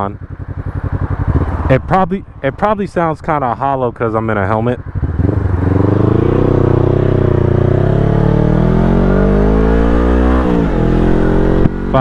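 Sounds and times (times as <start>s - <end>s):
motorcycle engine accelerating: 0.0s - 12.0s.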